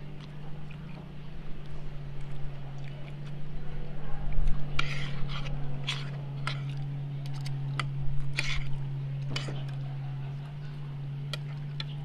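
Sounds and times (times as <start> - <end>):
steady low hum: 0.0 - 12.0
cutlery scraping a ceramic plate: 4.7 - 9.8.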